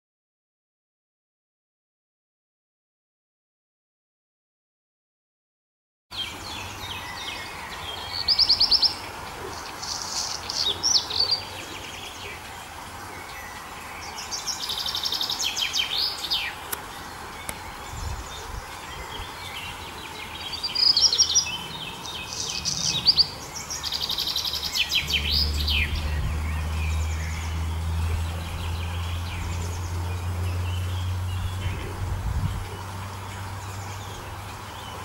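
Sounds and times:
songbird trilling: 0:13.2 - 0:35.0
low steady hum: 0:21.7 - 0:35.0.

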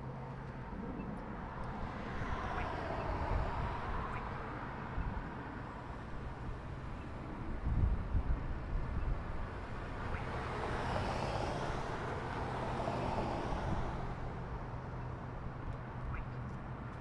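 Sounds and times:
wind rumble on microphone: 0:00.4 - 0:14.7
car passing: 0:00.8 - 0:07.4, 0:09.4 - 0:14.8.

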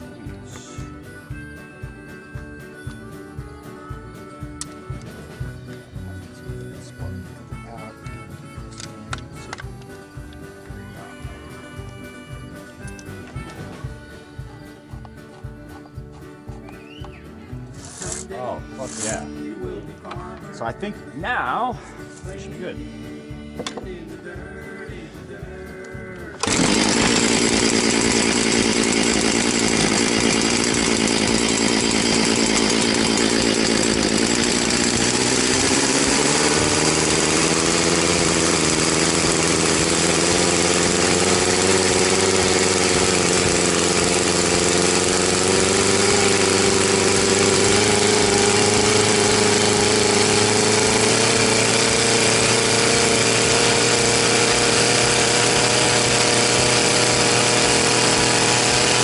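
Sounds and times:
chainsaw running: 0:00.0 - 0:16.2, 0:17.6 - 0:19.9, 0:26.2 - 0:59.0.

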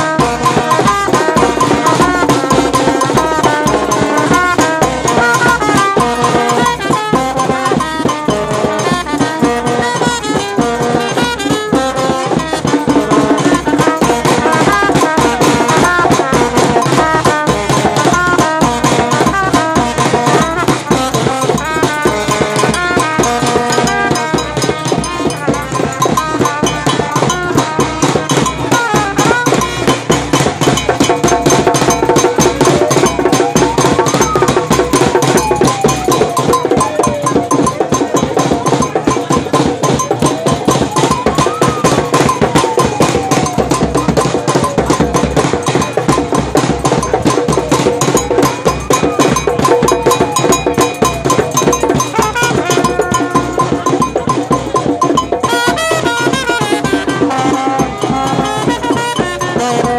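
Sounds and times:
drums: 0:00.0 - 0:59.9
hand-held metal bell: 0:00.0 - 0:59.9
trumpet: 0:00.0 - 0:59.9.

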